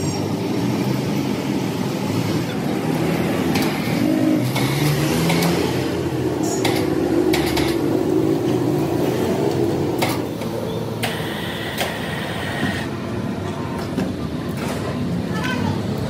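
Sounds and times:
machinery humming: 5.7s - 14.4s.

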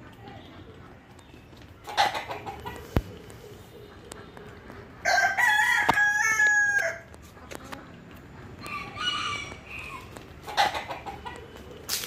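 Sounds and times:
rooster crowing: 5.0s - 7.1s, 8.6s - 10.1s.

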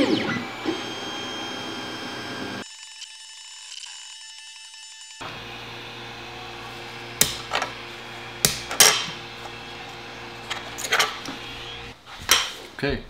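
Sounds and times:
printer humming: 0.0s - 2.6s, 5.2s - 12.0s.

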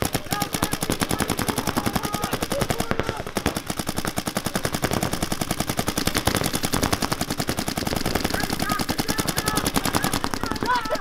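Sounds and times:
paintball markers firing rapidly: 0.0s - 11.0s.

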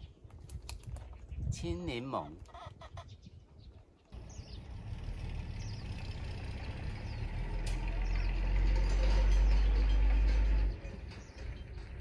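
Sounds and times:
small birds chirping: 0.0s - 12.0s
motor vehicle rumbling: 4.1s - 12.0s.

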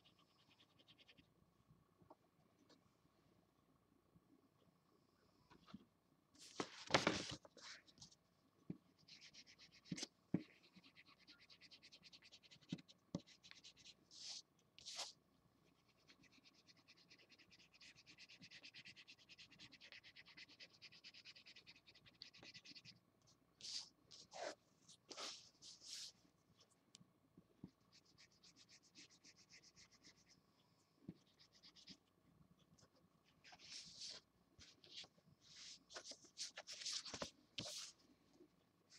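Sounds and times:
marker scratching on paper: 9.1s - 15.2s, 15.8s - 22.9s, 23.6s - 26.1s, 27.9s - 30.4s, 33.4s - 38.0s.

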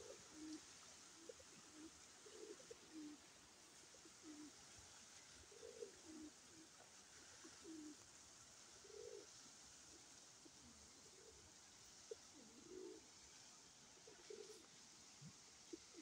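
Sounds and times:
pigeons cooing: 0.0s - 3.2s, 3.9s - 4.6s, 5.5s - 8.0s, 8.8s - 11.5s, 12.1s - 13.1s, 14.0s - 14.7s, 15.7s - 16.0s
faint steady hiss: 0.0s - 16.0s.

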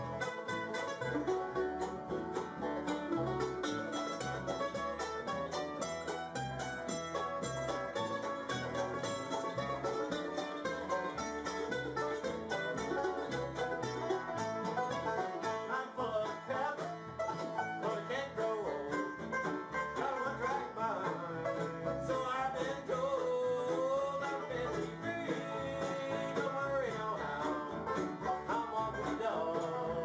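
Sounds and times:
bluegrass band playing: 0.0s - 30.0s
upright bass plucking: 0.0s - 30.0s.

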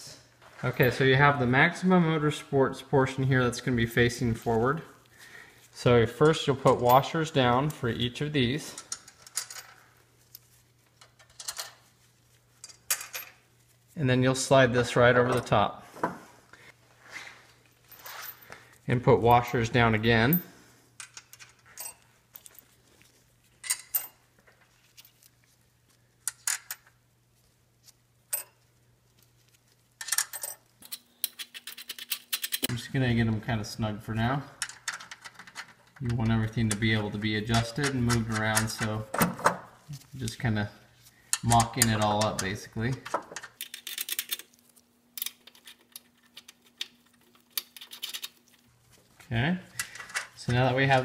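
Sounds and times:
metal washers and nuts clinking: 6.2s - 11.9s, 12.6s - 13.4s, 21.0s - 22.7s, 23.6s - 25.3s, 28.3s - 28.6s, 30.0s - 32.7s.

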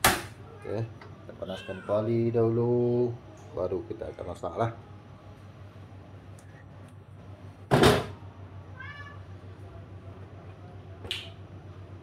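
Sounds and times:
cat meowing: 0.4s - 2.3s, 8.7s - 9.3s.

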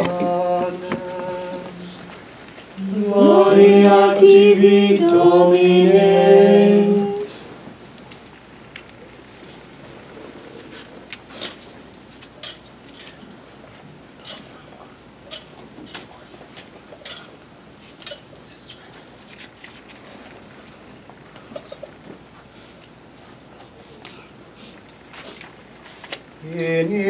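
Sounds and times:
thurible chains clinking: 12.4s - 13.4s.

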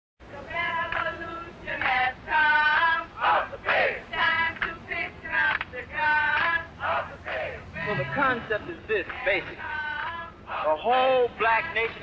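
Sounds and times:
group of voices chanting: 2.8s - 4.9s, 6.2s - 8.5s.

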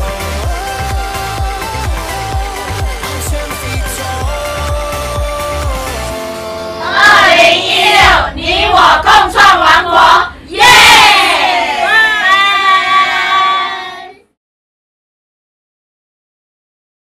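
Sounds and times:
electronic dance music: 0.0s - 10.3s
women shouting in unison: 10.6s - 14.0s
women cheering: 10.6s - 14.1s.

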